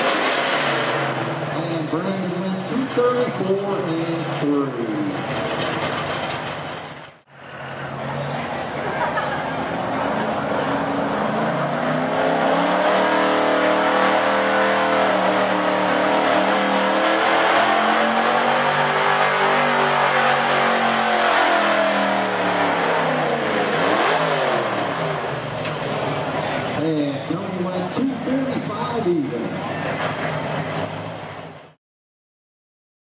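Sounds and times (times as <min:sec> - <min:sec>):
truck engine at high revs: 0:00.0 - 0:31.8.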